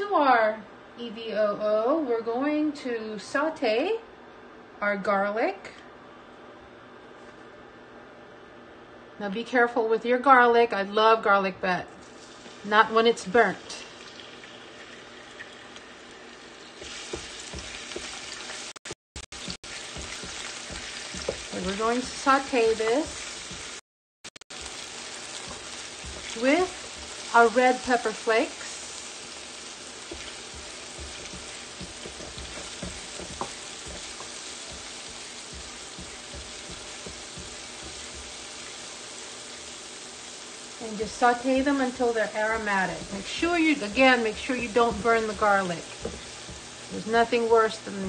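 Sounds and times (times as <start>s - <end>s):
garlic sizzling in oil: 12.0s - 23.8s, 24.5s - 48.0s
spatula knocking against pan: 30.1s - 38.3s.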